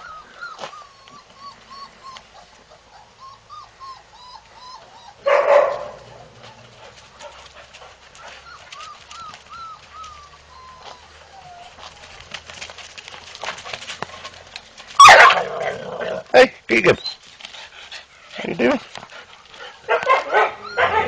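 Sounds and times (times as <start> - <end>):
dog whimpering: 0.0 - 5.3, 8.2 - 12.0, 20.3 - 21.0
dog barking: 5.2 - 6.0, 15.0 - 15.5, 19.9 - 21.0.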